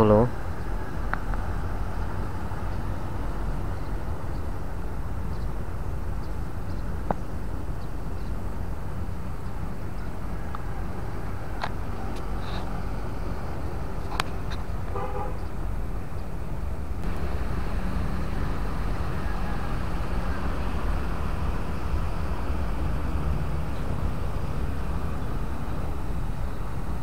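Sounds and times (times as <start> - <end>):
diesel engine running: 0.0 - 27.0
short horn toot: 14.9 - 15.4.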